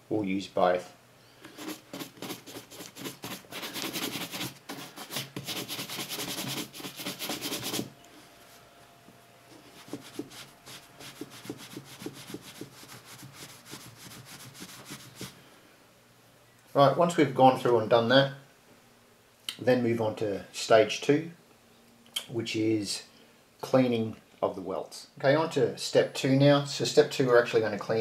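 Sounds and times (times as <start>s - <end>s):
polishing cloth rubbing: 1.5s - 7.9s, 9.5s - 15.4s
shoe brush buffing leather boot: 9.8s - 15.3s.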